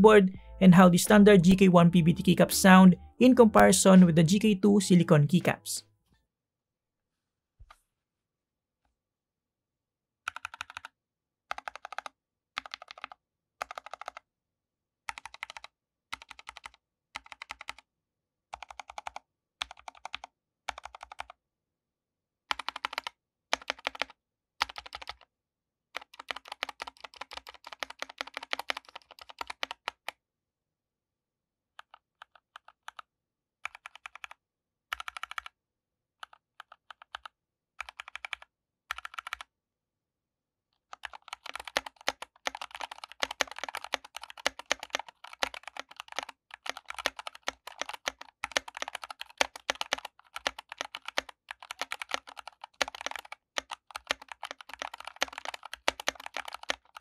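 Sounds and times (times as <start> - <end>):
mechanical keyboard typing: 10.3 - 14.2, 15.1 - 17.8, 18.6 - 21.4, 22.5 - 25.2, 26.0 - 30.1, 31.8 - 35.5, 36.2 - 39.5, 40.9 - 57.0.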